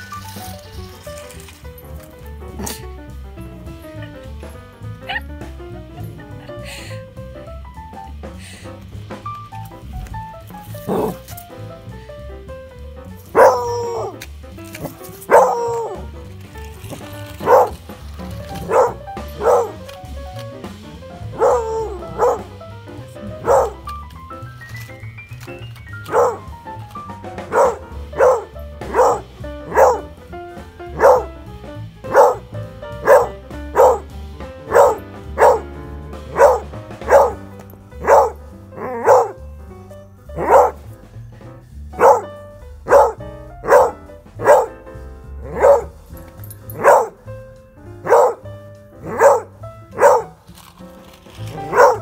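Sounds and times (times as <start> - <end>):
background music: 0.0 - 52.0
puppy barking: 2.6 - 2.8, 10.7 - 11.4, 13.3 - 14.2, 14.8 - 16.1, 16.9 - 22.6, 23.2 - 23.9, 26.0 - 26.6, 27.4 - 30.2, 30.9 - 31.4, 32.1 - 35.7, 36.3 - 39.4, 40.4 - 40.8, 42.0 - 46.1, 46.7 - 47.2, 48.0 - 50.4, 51.4 - 52.0.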